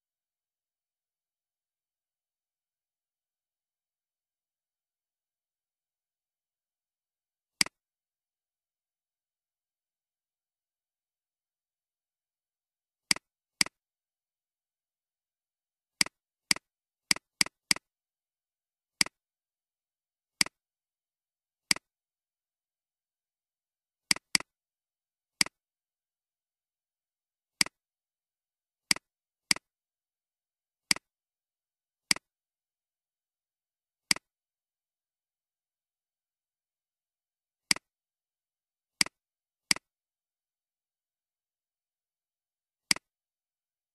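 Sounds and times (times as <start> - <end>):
computer mouse clicking: 24.1 - 24.5, 32.1 - 32.3.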